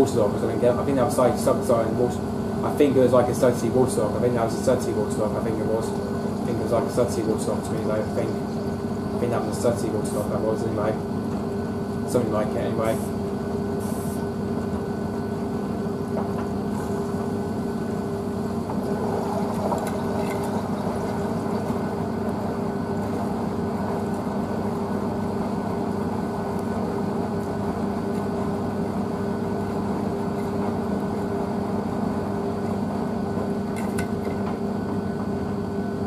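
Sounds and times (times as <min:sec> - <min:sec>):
washing machine motor humming: 0:00.0 - 0:36.0.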